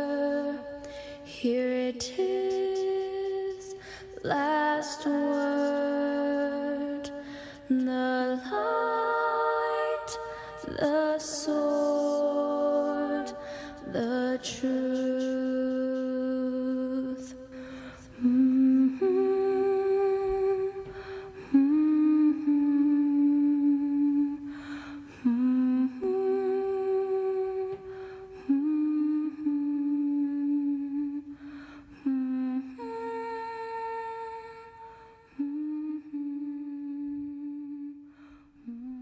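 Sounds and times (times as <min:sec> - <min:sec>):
person humming: 0:18.1 - 0:24.5, 0:25.1 - 0:31.4, 0:32.0 - 0:39.0.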